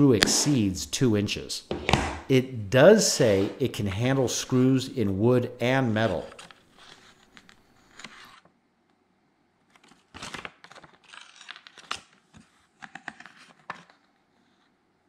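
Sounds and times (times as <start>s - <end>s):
paper rustling and crinkling: 6.0s - 8.5s, 9.7s - 14.7s.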